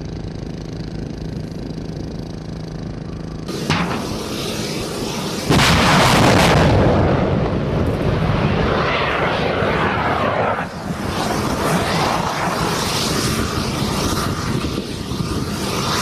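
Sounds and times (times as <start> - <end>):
rocket motor roaring: 0.0 - 16.0
missile launch blast: 3.5 - 14.8.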